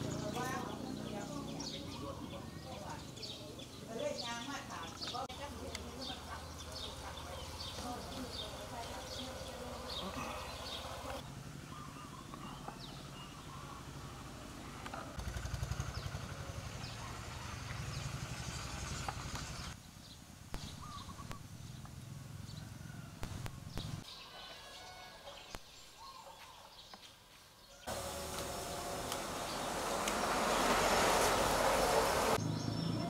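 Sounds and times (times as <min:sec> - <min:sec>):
small engine running: 0:06.1 - 0:11.4, 0:13.9 - 0:19.8, 0:27.9 - 0:32.6.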